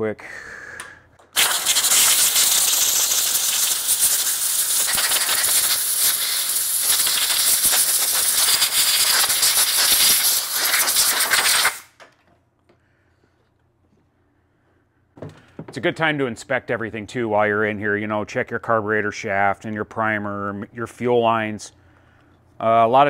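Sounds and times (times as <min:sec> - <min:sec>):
air blow gun hissing: 0:01.3 - 0:11.9.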